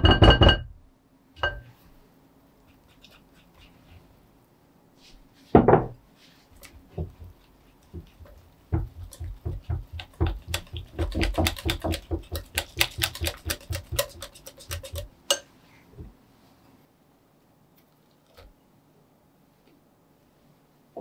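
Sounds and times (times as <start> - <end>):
whisk clicking against glass bowl: 8.1 - 15.5.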